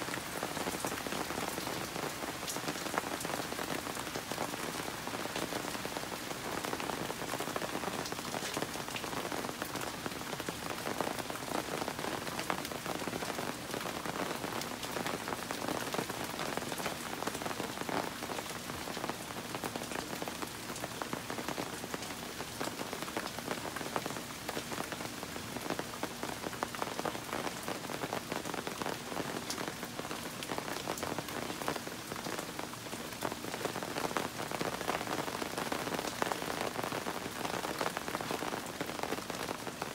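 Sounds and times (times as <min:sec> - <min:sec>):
rain falling on trees and deck: 0:00.0 - 0:39.9.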